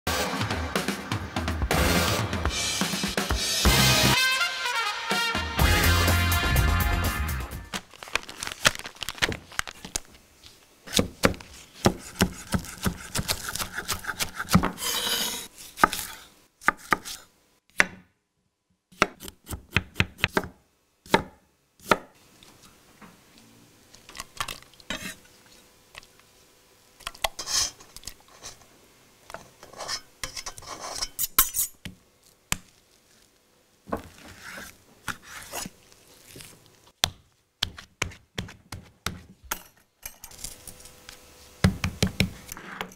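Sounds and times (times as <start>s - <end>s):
paper crinkling: 7.7s - 10.7s, 32.2s - 36.9s
knife chopping on wooden board: 10.9s - 14.8s.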